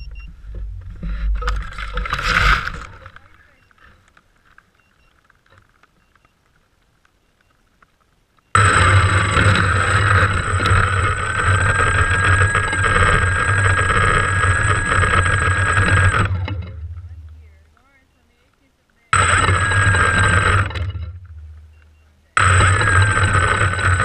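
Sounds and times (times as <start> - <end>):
drone propellers whirring: 0.0 - 4.0, 8.6 - 17.5, 19.1 - 24.0.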